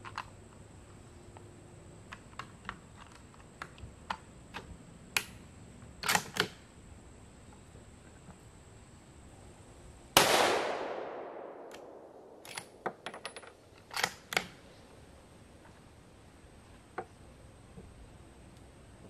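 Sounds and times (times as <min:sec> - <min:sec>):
rifle shot echo: 0:10.2 - 0:12.8
rifle bolt clicks and clacks: 0:11.6 - 0:14.6.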